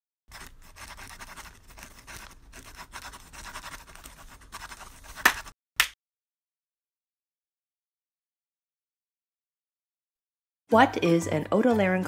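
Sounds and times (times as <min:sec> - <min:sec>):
pen scratching on paper: 0:00.3 - 0:05.5.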